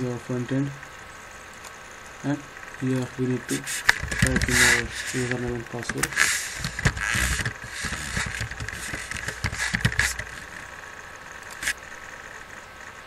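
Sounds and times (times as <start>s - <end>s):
computer keyboard typing: 6.0s - 10.5s.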